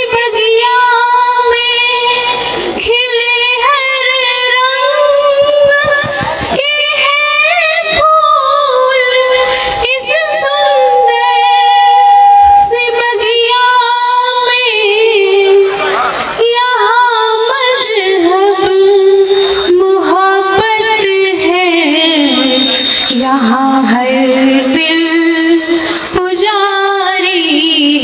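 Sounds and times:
woman singing into microphone: 0.0 - 28.0.

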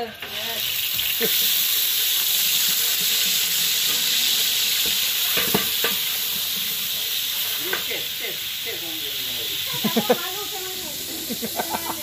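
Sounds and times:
oil sizzling in a pot: 0.0 - 12.0
metal ladle knocking pot: 4.8 - 6.1.

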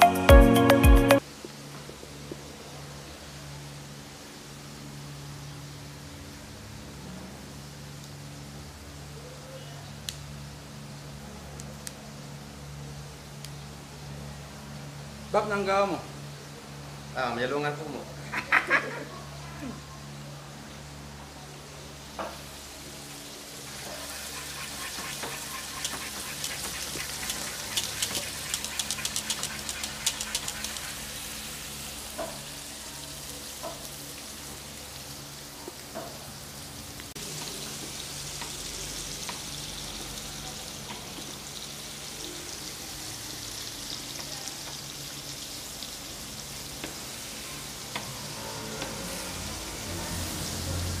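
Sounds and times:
meat sizzling in a pan: 21.8 - 51.0.

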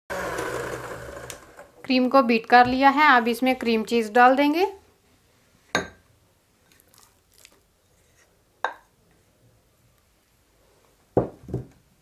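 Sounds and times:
glass clink: 5.8 - 6.0.

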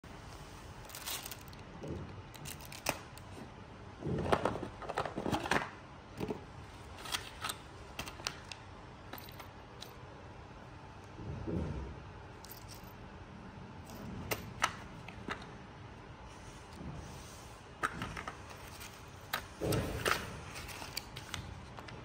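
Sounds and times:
plastic wrapping crinkling: 0.8 - 1.7.

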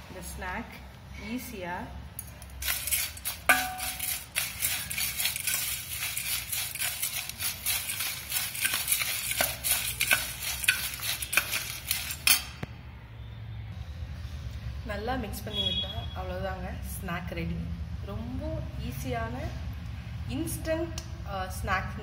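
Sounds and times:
spoon scraping and clinking on bowl: 2.3 - 12.6
dry rustling of puffed rice: 2.6 - 12.3.

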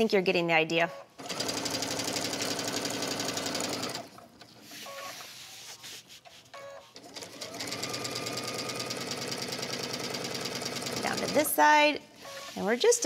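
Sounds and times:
sewing machine stitching: 1.2 - 5.1, 7.0 - 11.6.

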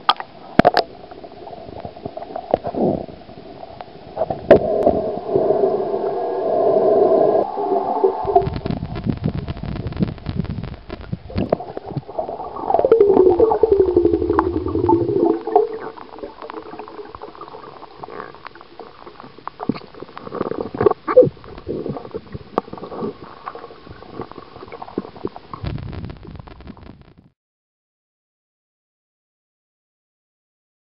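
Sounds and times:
water gurgling and clicking: 0.0 - 26.8.

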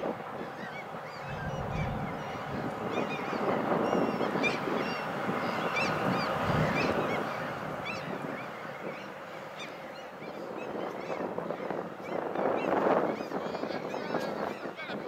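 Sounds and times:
steady rushing background: 1.2 - 3.4.

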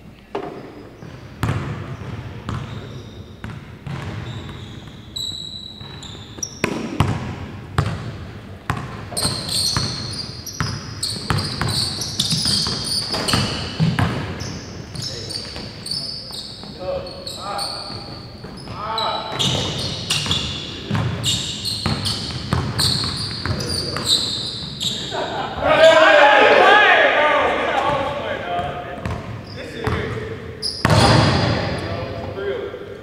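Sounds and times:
sneakers squeaking on court: 0.2 - 25.6, 27.9 - 32.3
basketball bouncing on hardwood floor: 0.4 - 2.7, 3.4 - 5.0, 6.6 - 8.1, 8.7 - 10.0, 10.6 - 15.0, 19.3 - 21.2, 21.8 - 24.1.

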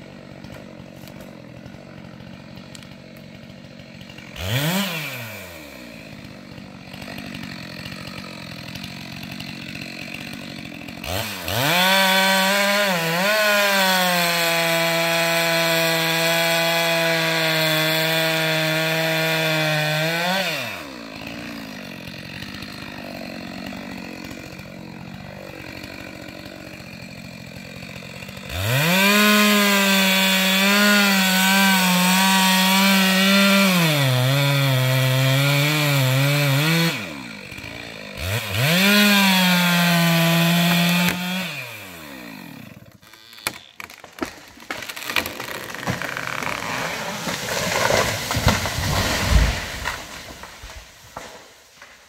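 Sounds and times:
chainsaw cutting into tree: 0.0 - 52.0
tree cracking and crashing down: 21.1 - 33.5, 43.0 - 52.0.

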